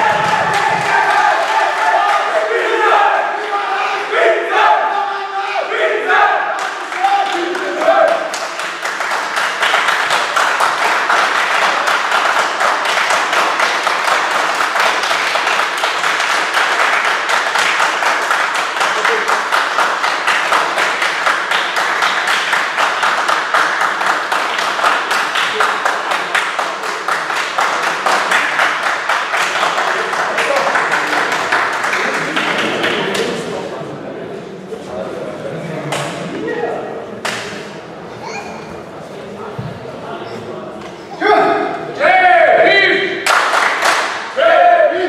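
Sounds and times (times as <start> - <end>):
crowd applauding: 0.0 - 3.0, 6.6 - 33.8, 43.2 - 44.4.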